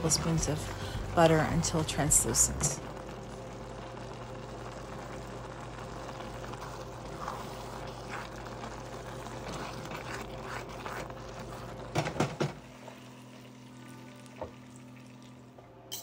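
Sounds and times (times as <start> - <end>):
steady low hum: 0.0 - 12.4
vegetables sizzling in butter: 0.0 - 15.2
spatula scraping saucepan: 6.4 - 12.2.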